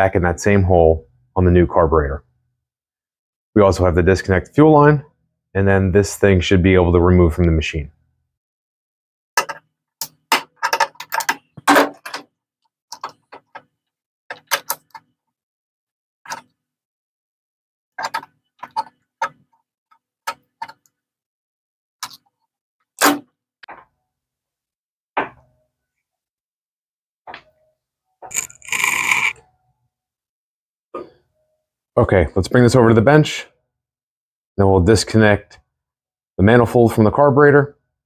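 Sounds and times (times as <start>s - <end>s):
pliers and metal parts clicking: 28.3s - 29.4s.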